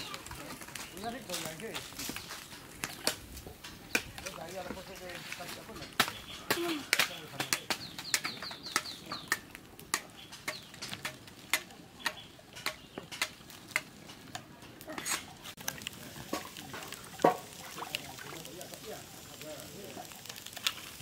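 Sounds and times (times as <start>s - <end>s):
wood fire crackling and popping: 0.0s - 21.0s.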